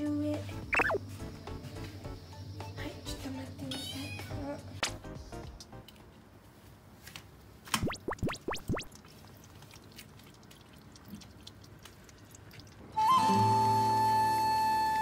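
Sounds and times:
kitten chewing and licking: 8.8s - 12.9s
flute music: 13.0s - 15.0s.

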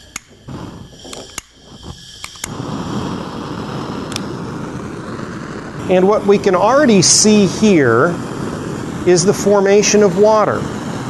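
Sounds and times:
burner flame hissing: 0.0s - 11.0s
sharp clicks: 0.1s - 0.3s.

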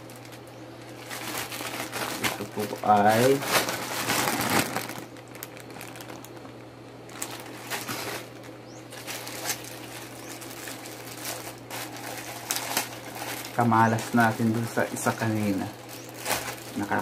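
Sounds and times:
plastic pouch crinkling: 0.0s - 17.0s
steady low hum: 0.0s - 17.0s.

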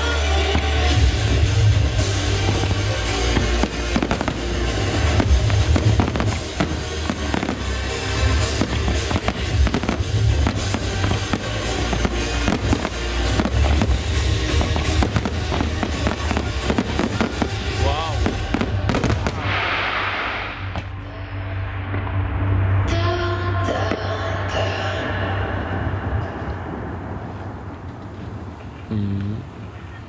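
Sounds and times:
music with heavy bass: 0.0s - 19.6s
fireworks bursting and crackling: 0.0s - 21.0s, 23.7s - 30.0s.

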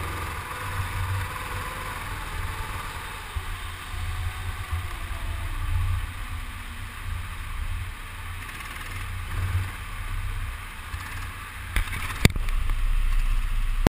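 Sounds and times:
go-kart low rumble: 0.0s - 13.9s.

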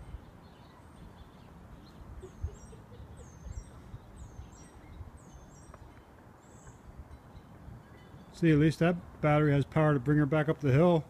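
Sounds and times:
small bird chirping: 0.0s - 8.3s.

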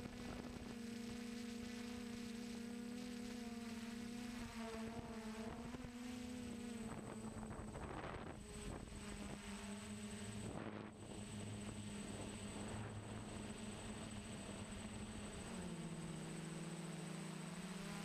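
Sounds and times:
quadcopter motors humming: 0.0s - 18.0s
wind noise on microphone: 6.8s - 9.4s.

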